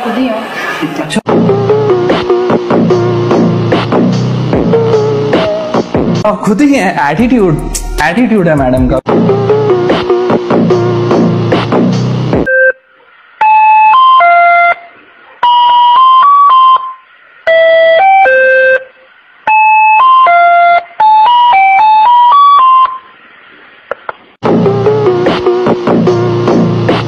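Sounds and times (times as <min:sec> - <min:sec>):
background music: 0:01.3 - 0:12.5, 0:24.4 - 0:27.0
man's voice: 0:06.2 - 0:09.1
electronic beeping tune: 0:19.5 - 0:23.1.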